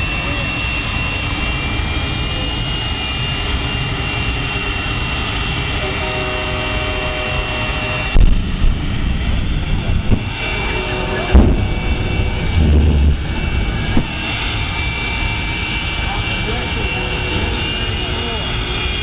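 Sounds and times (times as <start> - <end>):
turbine engine roar and whine: 0.0 - 19.0
short deep rumble: 8.0 - 16.2
sharp loud bangs: 9.8 - 15.9.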